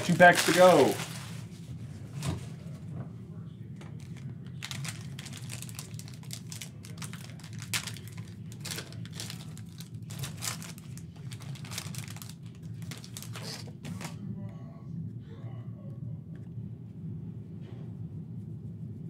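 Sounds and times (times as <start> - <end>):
plastic wrapper crinkling: 0.0 - 1.5, 4.0 - 14.2.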